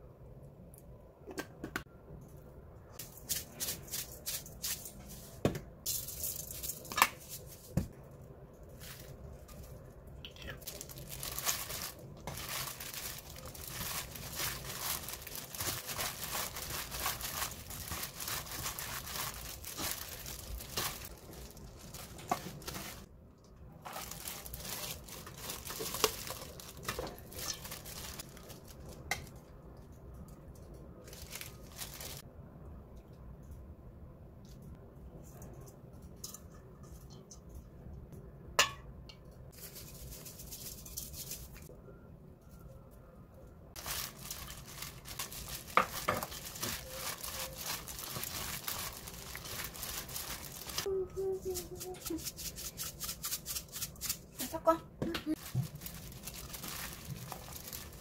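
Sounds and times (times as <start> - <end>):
plastic glove crinkling: 3.0 - 23.1, 23.8 - 29.2, 30.8 - 32.3, 43.8 - 54.6, 55.3 - 58.0.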